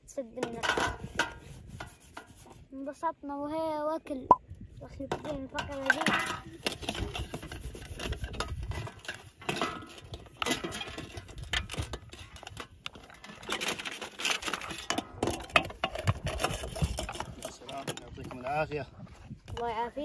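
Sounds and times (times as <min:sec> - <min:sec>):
sponge scrubbing metal tray: 0:00.4 - 0:02.7, 0:05.7 - 0:10.9.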